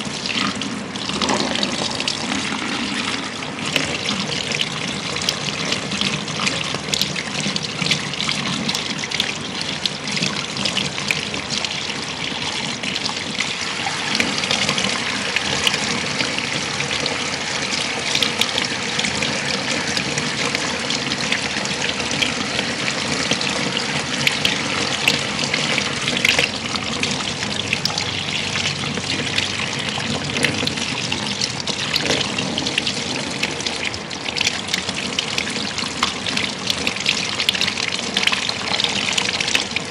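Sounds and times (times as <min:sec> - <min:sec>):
water splashing into basin: 0:00.0 - 0:39.9.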